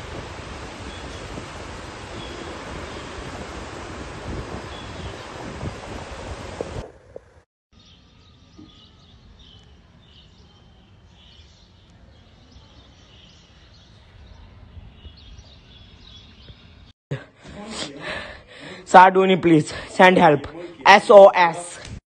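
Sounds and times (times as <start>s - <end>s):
wind noise on microphone: 0.0s - 7.4s, 13.4s - 16.9s
small birds chirping: 0.1s - 6.3s, 7.8s - 16.9s.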